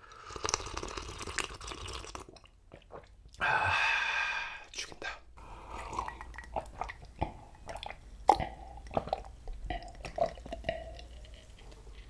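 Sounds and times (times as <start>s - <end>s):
person gulping water: 0.0s - 11.6s.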